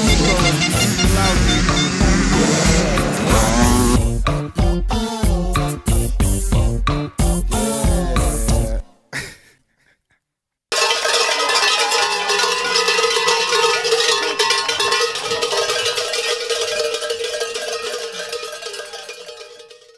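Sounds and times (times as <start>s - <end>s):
cowbells clanging: 0.0s - 3.9s, 10.7s - 19.9s.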